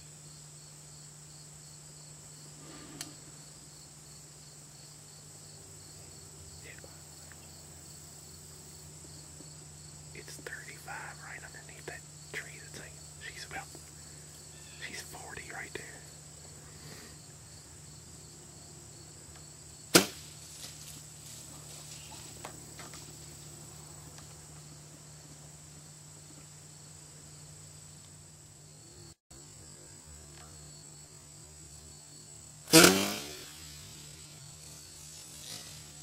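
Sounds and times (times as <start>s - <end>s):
bow firing crack: 19.9s - 23.1s, 32.7s - 34.0s.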